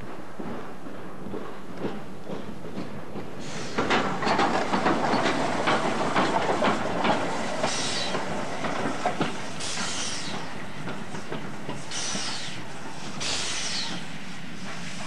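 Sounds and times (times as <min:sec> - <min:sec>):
locomotive knocks and clanks: 0:00.0 - 0:12.3
steam hissing bursts: 0:03.4 - 0:04.2, 0:06.7 - 0:10.8, 0:11.6 - 0:15.0.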